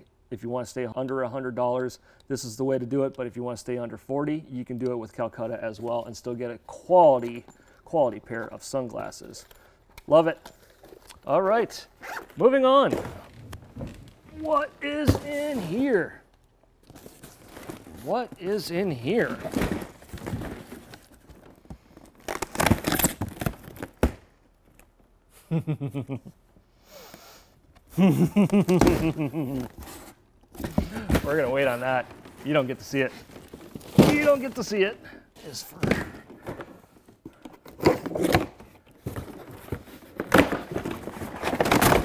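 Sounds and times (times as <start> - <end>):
cardboard rustling and scraping: 12.2 - 16.0, 16.9 - 24.0, 28.8 - 34.8, 35.5 - 42.0
cardboard flaps and tape tearing: 19.3 - 24.2.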